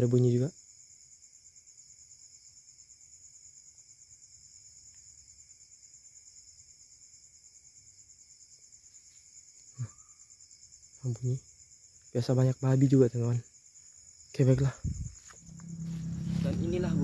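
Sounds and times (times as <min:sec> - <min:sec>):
crickets trilling: 0:00.0 - 0:17.0
low buzz: 0:14.8 - 0:17.0.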